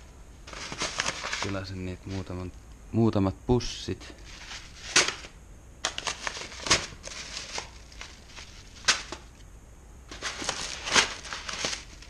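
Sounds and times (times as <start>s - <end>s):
plastic bags crinkling and rustling: 0.4s - 2.4s, 4.2s - 9.4s, 10.1s - 12.0s.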